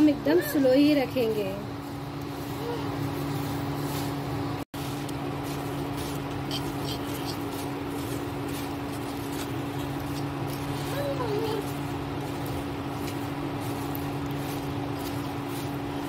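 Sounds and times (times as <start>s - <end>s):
steady low hum: 0.0s - 16.0s
spatula scraping dry flakes: 4.8s - 16.0s.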